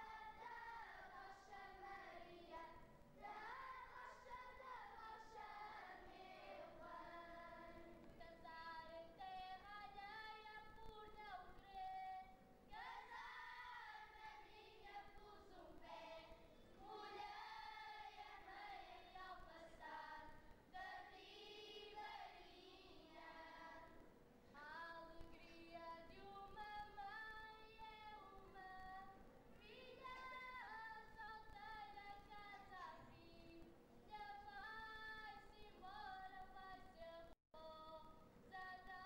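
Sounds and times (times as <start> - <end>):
children singing: 0.0 - 7.9, 12.8 - 20.2.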